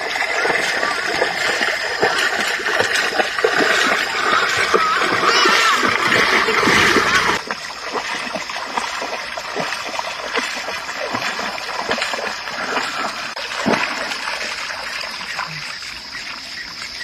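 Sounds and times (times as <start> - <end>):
paws splashing in water: 0.0 - 17.0.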